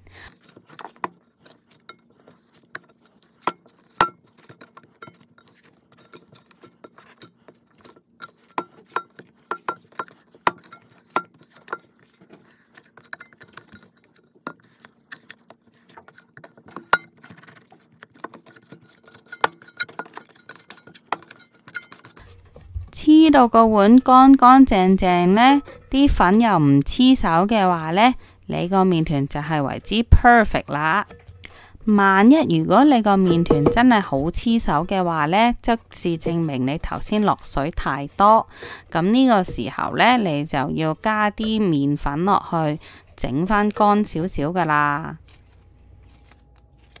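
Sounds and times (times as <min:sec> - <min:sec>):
dough kneaded in metal bowl: 0:00.0 - 0:47.0.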